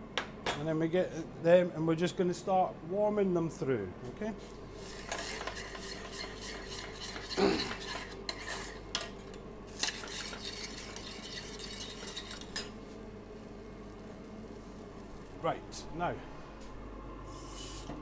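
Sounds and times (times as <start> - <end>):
faint steady hum: 0.0 - 18.0
utensil scraping metal saucepan: 4.8 - 8.9, 9.8 - 12.7.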